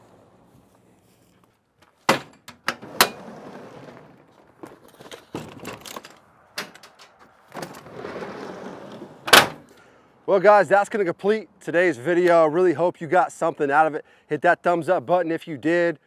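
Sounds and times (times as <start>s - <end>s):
tool bag clunking and rattling: 1.8s - 8.1s
metal drawer sliding shut: 2.1s - 4.1s, 7.6s - 9.7s.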